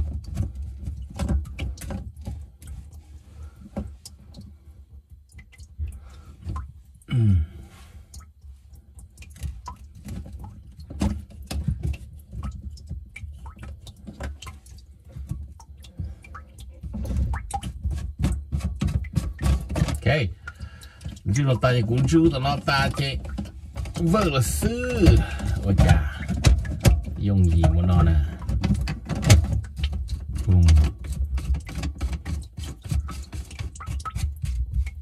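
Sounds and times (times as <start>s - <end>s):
plastic clicks and scrapes: 9.2s - 20.2s, 21.9s - 35.0s.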